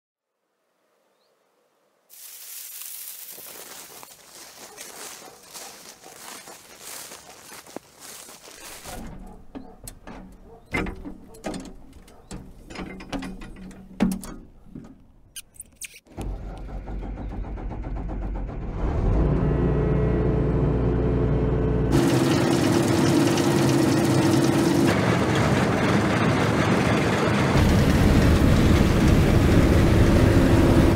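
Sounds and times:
mechanical clicks and knocks: 0:09.0 - 0:16.7
low engine rumble: 0:16.1 - 0:30.9
steady machine whine: 0:19.6 - 0:30.9.

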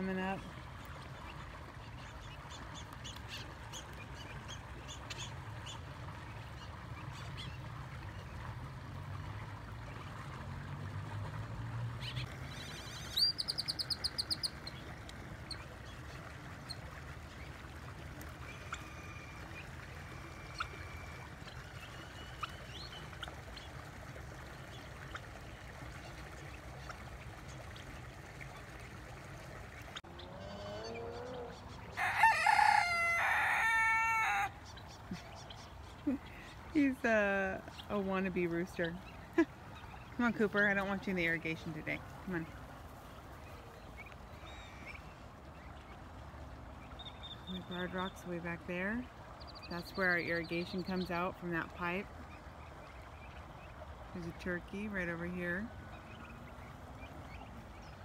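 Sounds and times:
young cockerel crowing: 0:30.4 - 0:34.6.

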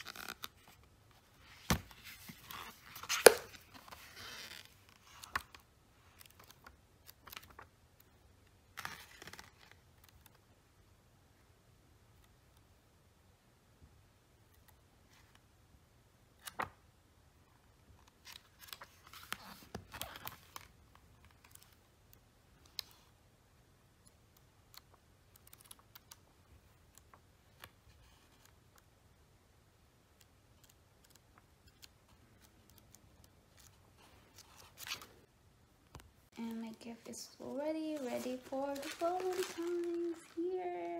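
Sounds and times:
paper rustling: 0:00.0 - 0:07.7, 0:18.1 - 0:21.8, 0:30.6 - 0:35.2, 0:36.4 - 0:40.9
book pages turning: 0:00.0 - 0:08.1, 0:08.7 - 0:10.4, 0:16.4 - 0:16.8, 0:17.9 - 0:21.8, 0:24.7 - 0:28.9, 0:30.2 - 0:35.3, 0:35.9 - 0:40.9.

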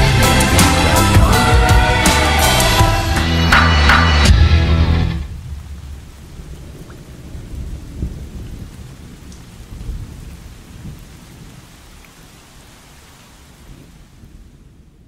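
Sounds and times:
thunder rumbling: 0:00.0 - 0:12.6, 0:13.5 - 0:15.0
rain hissing: 0:04.3 - 0:15.0.

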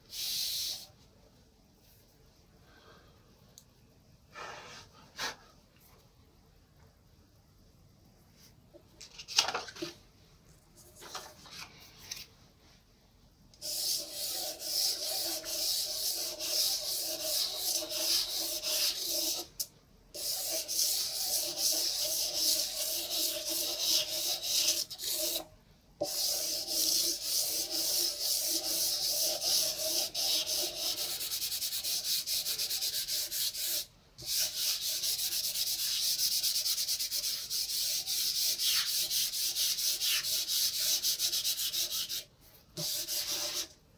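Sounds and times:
pastel stick scratching paper: 0:13.6 - 0:19.5, 0:20.2 - 0:25.4, 0:26.0 - 0:43.7.

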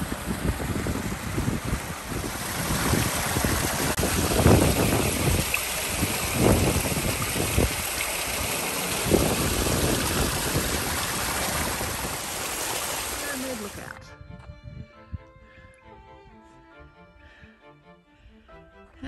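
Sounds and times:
creek trickling over rocks: 0:00.0 - 0:14.0
wind buffeting microphone: 0:00.0 - 0:15.7.

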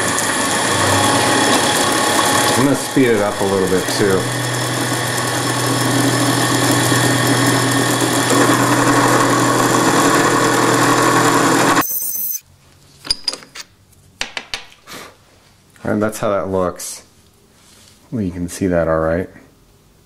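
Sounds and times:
milling machine hum and whine: 0:00.0 - 0:12.4.

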